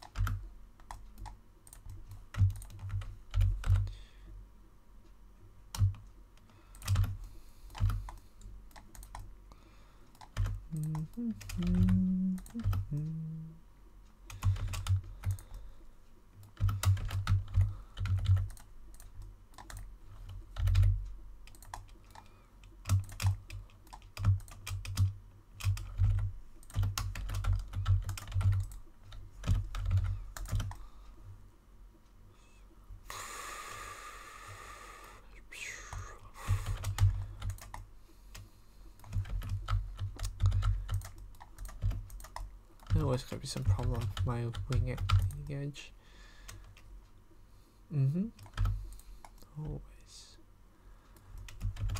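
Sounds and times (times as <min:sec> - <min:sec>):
computer keyboard key clicks: 0:00.0 - 0:03.9, 0:05.7 - 0:09.3, 0:16.4 - 0:30.8, 0:39.0 - 0:43.0, 0:43.6 - 0:45.5, 0:48.4 - 0:49.5.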